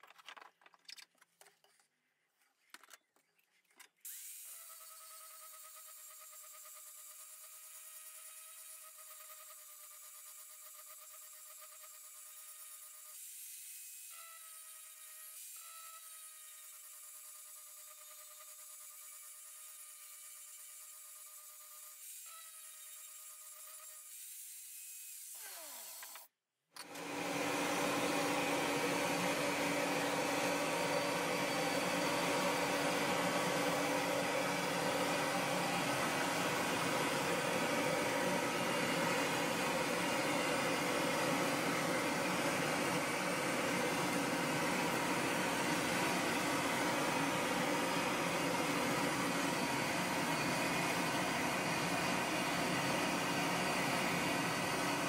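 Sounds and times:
angle grinder spinning down: 0:25.1 - 0:26.2, 0:26.8 - 0:55.0
electric blower rushing air: 0:26.8 - 0:55.0.

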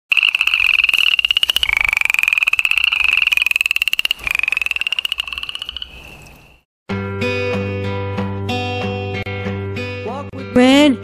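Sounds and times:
frogs trilling: 0:00.1 - 0:06.6.

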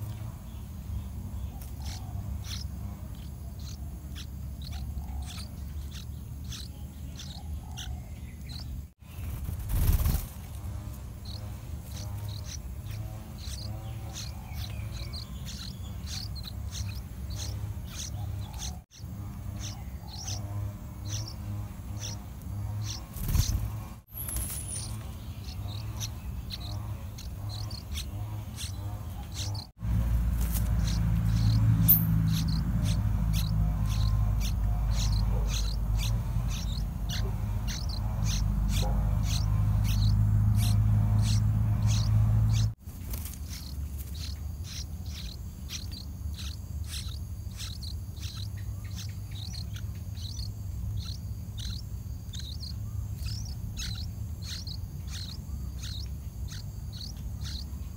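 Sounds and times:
nestlings begging chirps: 0:00.0 - 0:57.9.

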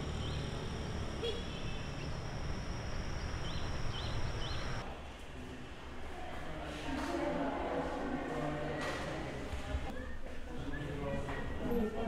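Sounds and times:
birds chirping: 0:00.0 - 0:04.8.

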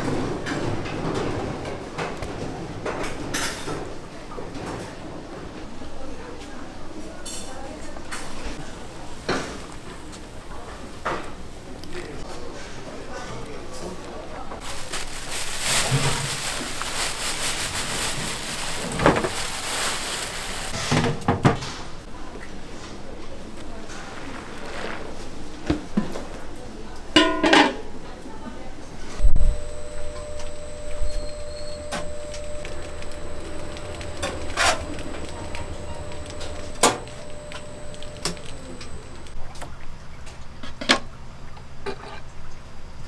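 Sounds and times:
dried fish rattling into basket: 0:14.6 - 0:20.8
plastic bag crinkling: 0:14.6 - 0:20.8, 0:29.5 - 0:39.4
machine humming with faint whine: 0:29.2 - 0:39.4.

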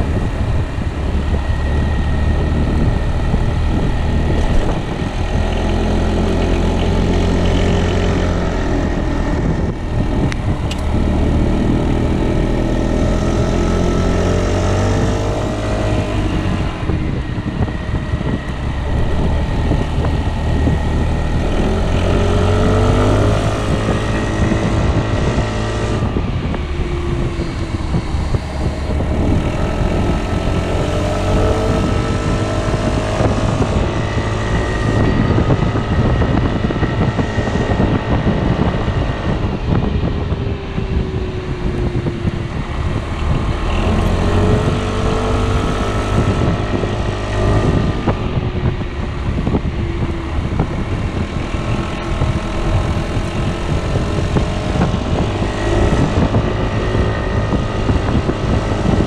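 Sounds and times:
scooter engine running: 0:00.0 - 0:59.0.

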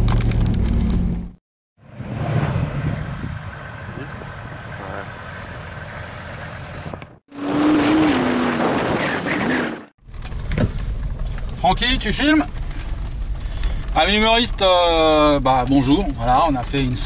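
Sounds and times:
engine low rumble: 0:00.0 - 0:07.2, 0:10.0 - 0:17.0
vehicle driving on dirt track: 0:00.0 - 0:17.0.

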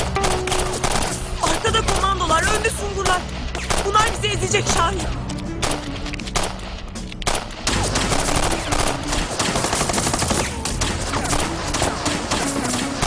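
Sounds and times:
rapid automatic gunfire: 0:00.0 - 0:02.6, 0:07.3 - 0:13.0.

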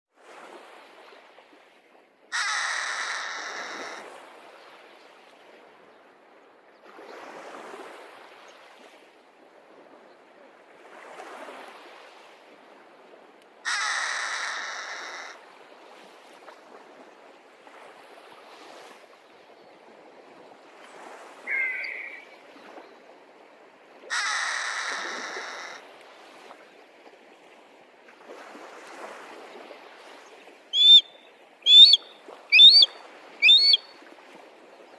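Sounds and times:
hawk screaming: 0:02.3 - 0:04.0, 0:13.7 - 0:15.4, 0:24.1 - 0:25.8, 0:31.7 - 0:33.8.

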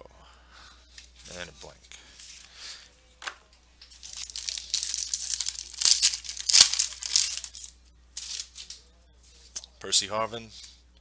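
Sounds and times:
foil wrapper tearing and crinkling: 0:03.9 - 0:08.8.

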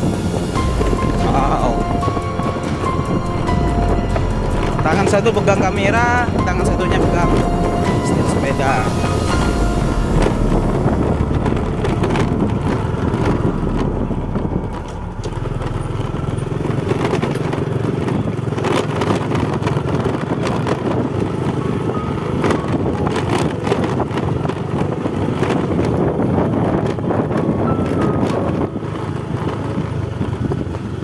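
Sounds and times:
motorcycle engine running: 0:00.0 - 0:31.0.

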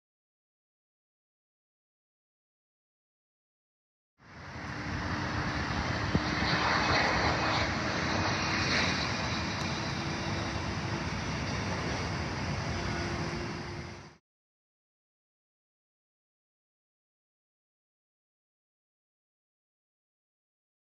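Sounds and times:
jet engines rushing: 0:04.2 - 0:14.2.

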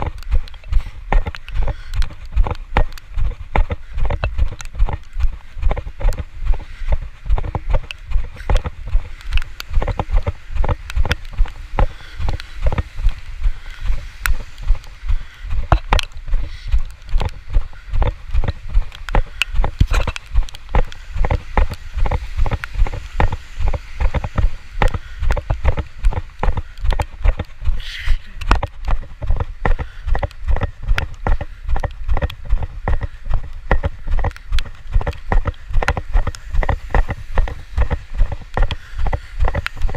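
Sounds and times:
brisk footsteps thudding: 0:28.4 - 0:39.9.

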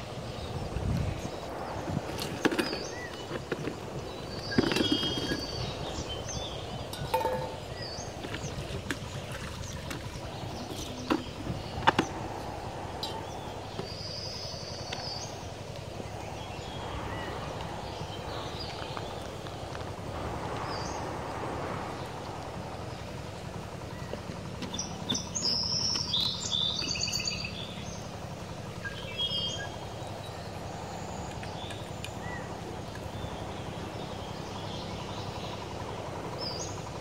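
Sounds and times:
bird chirping: 0:00.4 - 0:12.4, 0:24.6 - 0:28.1.

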